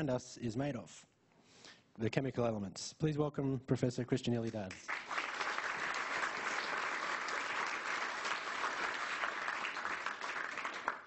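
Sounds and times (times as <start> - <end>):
audience applauding: 4.7 - 11.0.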